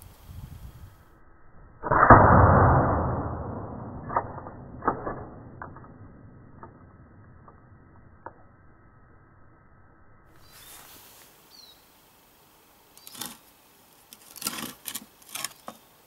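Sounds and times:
deep drawn-out gunshot blast: 1.8s - 5.4s.

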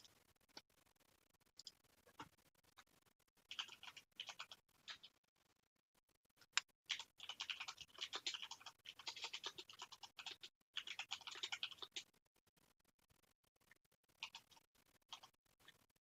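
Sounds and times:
keyboard typing: 3.5s - 5.1s, 6.4s - 12.1s, 14.2s - 15.4s.

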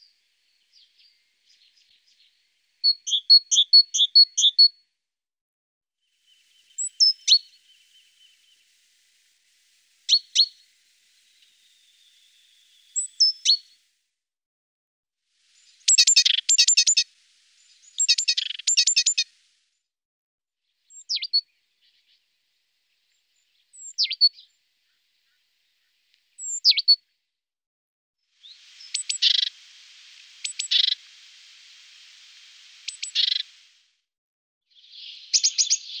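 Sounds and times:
songbird chirps: 0.0s - 4.8s, 6.0s - 14.0s, 15.3s - 19.8s, 20.8s - 27.0s, 28.3s - 33.9s, 34.7s - 36.0s
hissing pulsed bird call: 6.1s - 14.0s, 15.4s - 19.7s, 28.4s - 33.9s.

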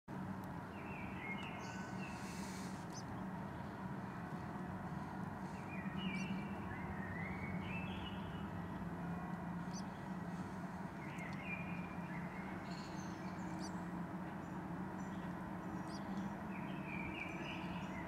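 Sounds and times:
steady low hum: 0.1s - 18.0s
pigeon chick peeping: 1.4s - 3.1s, 4.9s - 7.1s, 9.6s - 10.5s, 15.8s - 16.1s.

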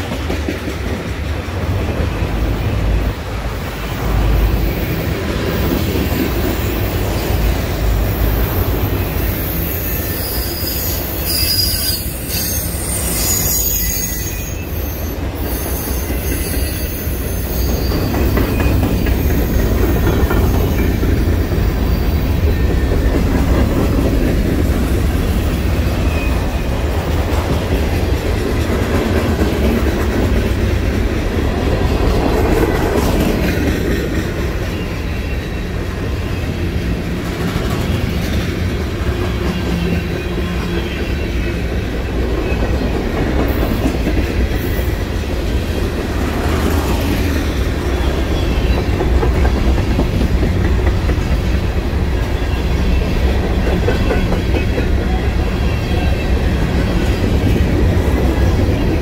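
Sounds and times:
train wheels rumbling on rail: 0.0s - 59.0s
high wheel squeal: 4.6s - 21.0s.

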